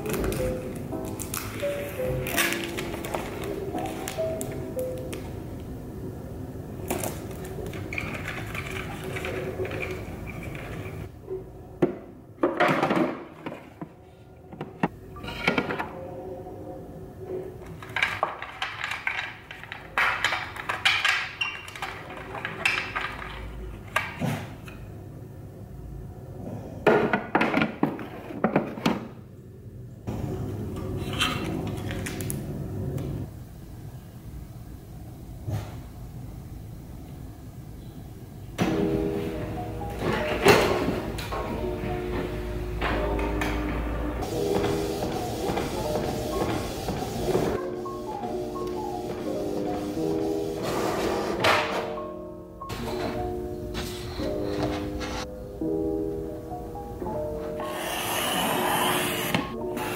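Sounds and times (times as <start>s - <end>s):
cards and plastic sleeves rustling: 0.0s - 5.2s.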